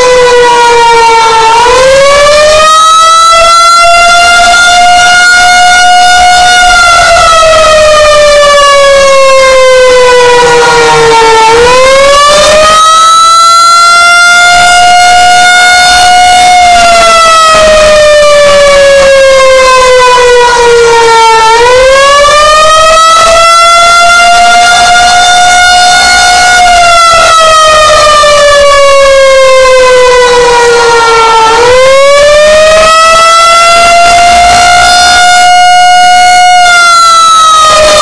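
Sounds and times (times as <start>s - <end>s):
warning siren wailing: 0.0s - 38.0s.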